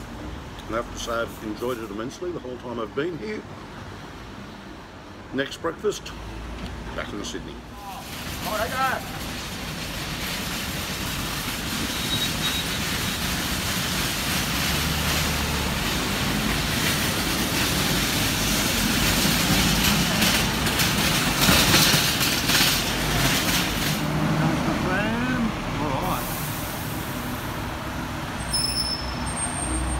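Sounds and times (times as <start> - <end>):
city traffic noise: 0.0 - 29.9
tram wheels rumbling on rails: 6.2 - 29.9.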